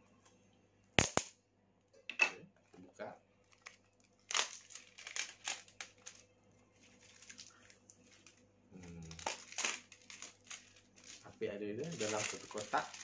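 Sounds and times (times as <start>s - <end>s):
packaging crinkling and tearing: 3.4s - 13.0s.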